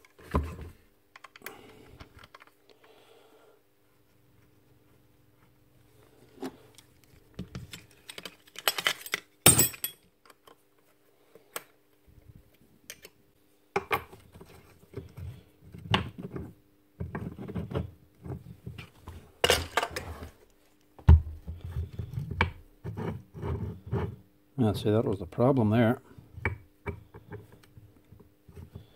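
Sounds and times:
metal parts clinking and knocking: 7.6s - 10.1s.

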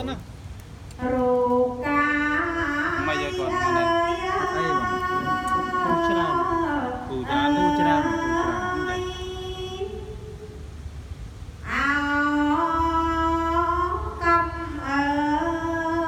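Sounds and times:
solo voice chanting: 1.0s - 10.5s.

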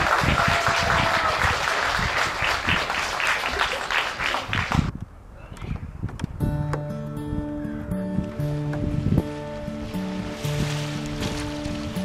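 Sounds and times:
audience applauding: 0.0s - 4.9s.

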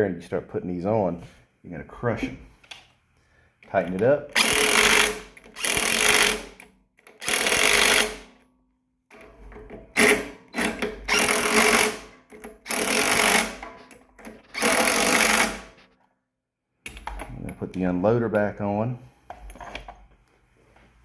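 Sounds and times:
impact driver hammering: 4.3s - 8.3s, 9.1s - 15.8s.

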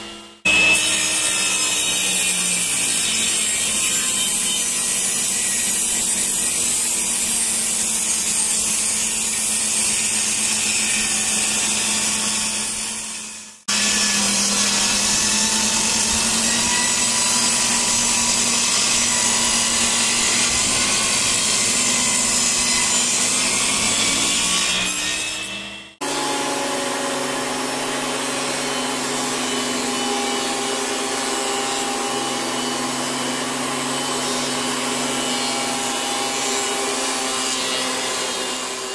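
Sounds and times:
table saw cutting wood: 0.0s - 38.9s
thickness planer running: 25.5s - 38.9s.

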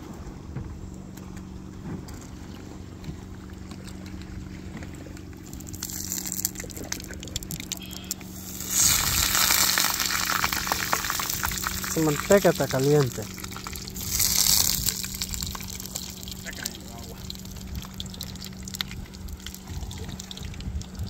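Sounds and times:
low steady hum: 0.0s - 21.0s
food sizzling and crackling: 5.6s - 20.4s.

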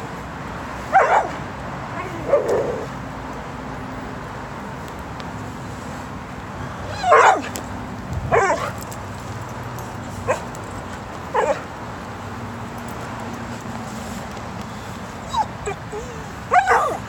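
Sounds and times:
dog yipping barks: 0.9s - 1.4s, 6.9s - 7.6s, 8.3s - 8.8s, 10.2s - 10.6s, 11.3s - 11.7s, 15.3s - 17.0s.

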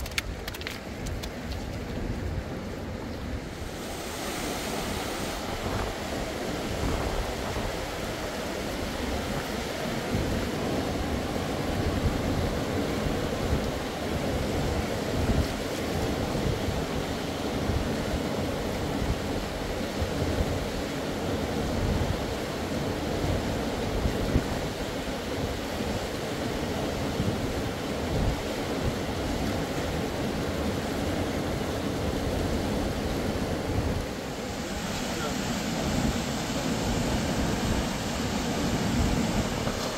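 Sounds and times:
steady rushing noise: 0.0s - 16.4s, 30.6s - 39.9s
wind buffeting microphone: 0.0s - 17.0s.

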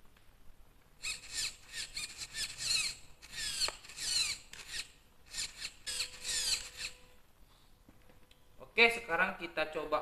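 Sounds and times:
servo whirring: 1.0s - 7.2s.

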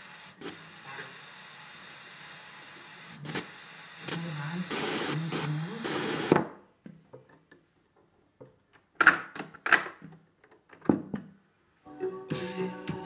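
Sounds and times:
radio sound: 0.5s - 1.3s, 3.0s - 6.3s.

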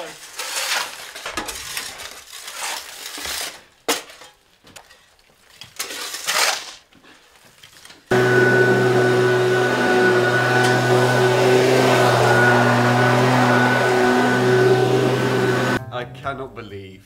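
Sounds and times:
hand tools scraping stone rubble: 0.0s - 6.9s
leaf blower running: 8.1s - 15.9s.

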